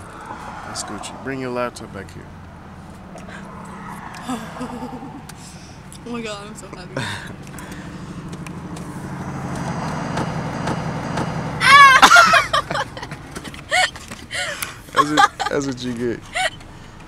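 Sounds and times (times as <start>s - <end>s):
vehicle engine running: 1.2s - 17.0s
loud high-pitched laughter: 11.6s - 13.0s.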